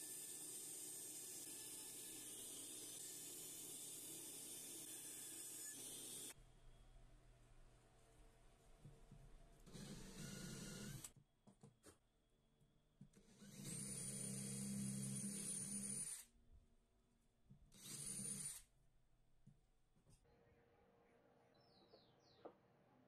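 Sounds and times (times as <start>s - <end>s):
electric drill boring through plywood: 0.0s - 6.4s, 9.7s - 11.1s, 13.2s - 16.3s, 17.7s - 18.7s.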